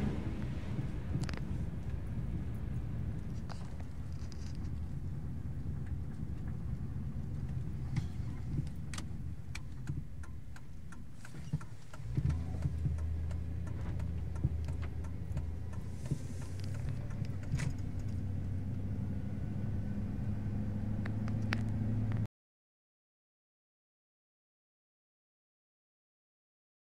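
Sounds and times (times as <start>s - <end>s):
car engine and road hum: 0.0s - 22.3s
light clicks and taps: 5.6s - 18.2s.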